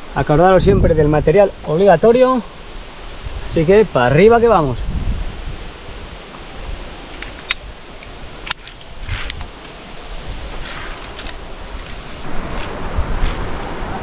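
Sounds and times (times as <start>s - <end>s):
metal carabiners jingling: 10.6s - 11.4s.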